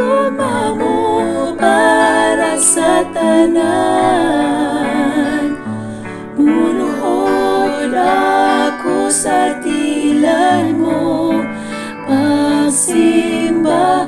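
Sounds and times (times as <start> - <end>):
instrumental accompaniment: 0.0 - 14.0
woman singing worship song: 0.0 - 14.0.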